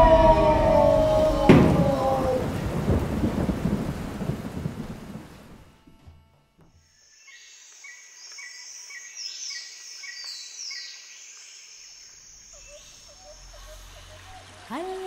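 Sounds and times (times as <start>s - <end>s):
higher falling calls: 0.0s - 3.2s
birds and insects chirping: 6.7s - 15.0s.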